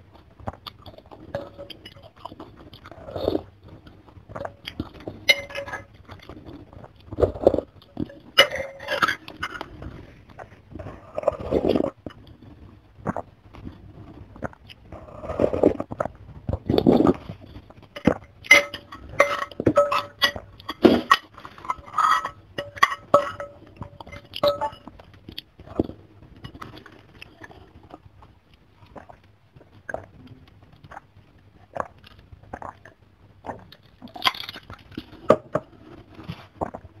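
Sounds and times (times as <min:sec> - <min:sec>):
chewing and wet mouth clicks: 0:00.2 - 0:05.3
slurping broth and noodles: 0:00.7 - 0:17.4.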